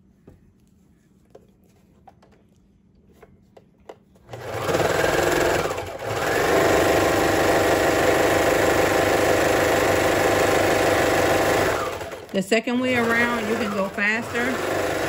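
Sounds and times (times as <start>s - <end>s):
serger sewing machine running: 4.3s - 15.0s.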